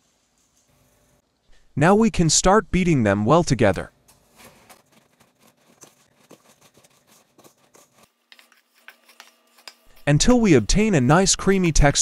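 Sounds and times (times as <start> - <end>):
spatula scraping metal bowl: 4.4 - 12.0.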